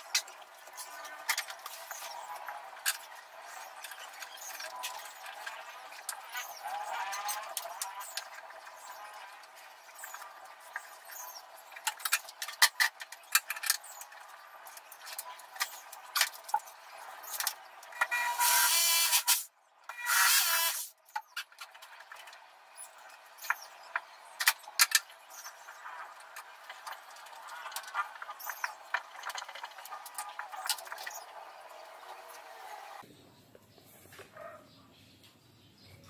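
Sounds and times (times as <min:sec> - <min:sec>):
power drill driving screws: 0:18.1 - 0:20.9.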